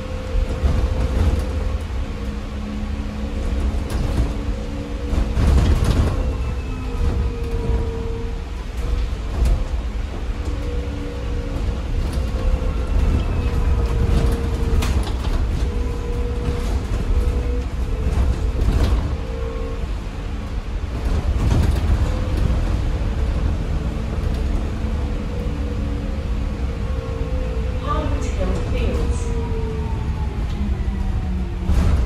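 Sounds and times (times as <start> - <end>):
bus road rumble: 0.0 - 32.0.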